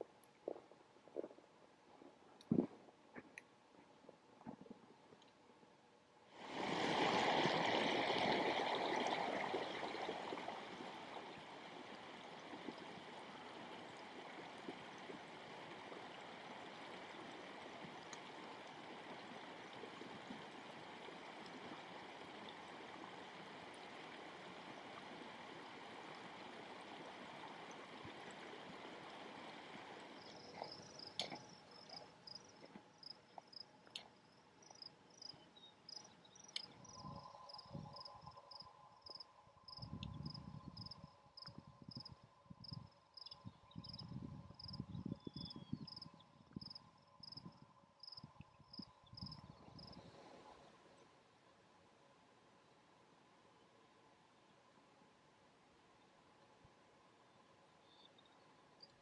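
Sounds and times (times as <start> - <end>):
running water: 6.4 - 35.3
insects chirping: 29.1 - 50.2.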